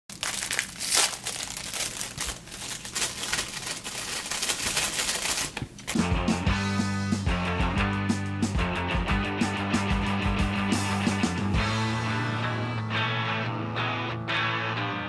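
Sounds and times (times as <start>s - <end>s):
plastic wrapper crinkling: 0.1s - 6.0s
rock music with guitar: 6.0s - 15.0s.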